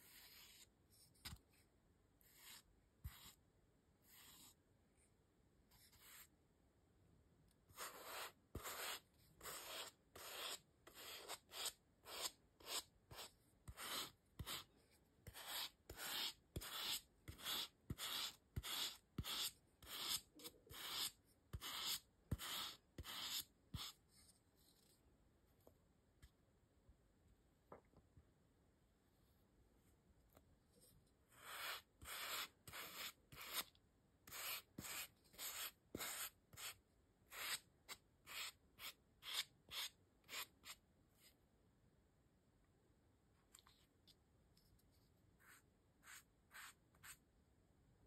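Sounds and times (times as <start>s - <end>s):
scratchy brush strokes: 0.0s - 3.4s, 4.0s - 4.6s, 5.7s - 6.3s, 7.7s - 25.0s, 30.7s - 33.7s, 34.3s - 41.4s, 44.6s - 47.2s.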